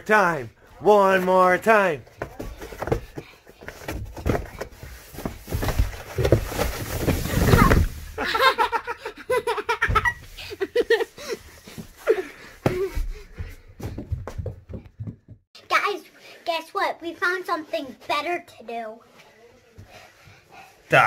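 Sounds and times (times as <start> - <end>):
child sliding on cardboard: 2.2 - 8.2
child laughing: 7.6 - 11.1.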